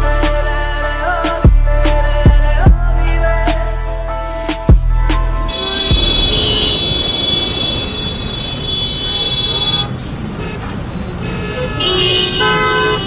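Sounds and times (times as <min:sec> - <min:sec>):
street traffic: 0:00.0 - 0:13.0
car horn blasts: 0:05.5 - 0:13.0.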